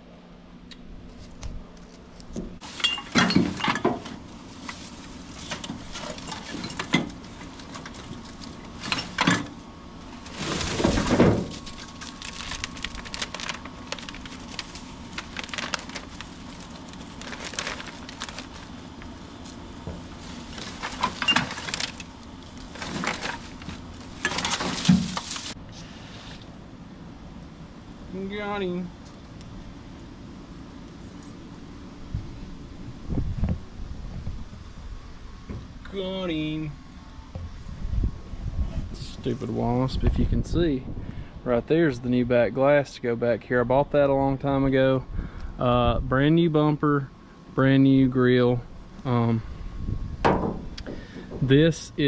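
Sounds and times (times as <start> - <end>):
junk clattering and clinking: 2.6 - 9.6, 10.2 - 16.0, 19.8 - 25.6, 50.2 - 51.7.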